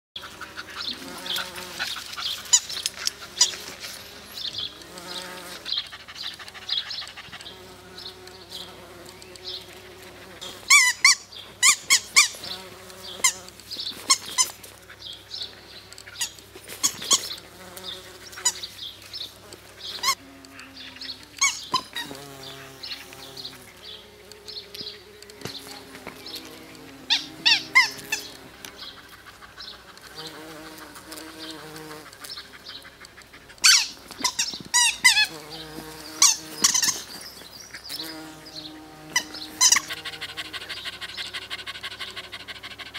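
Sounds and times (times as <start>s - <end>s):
bumblebee buzzing: 0.2s - 32.9s, 33.6s - 42.9s
high squeaky chirps: 10.4s - 14.9s, 15.5s - 28.5s, 33.6s - 40.0s.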